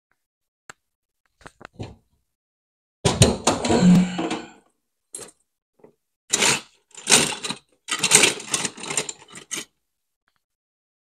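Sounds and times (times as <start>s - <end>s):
plastic and metal parts rattling: 6.3s - 9.7s.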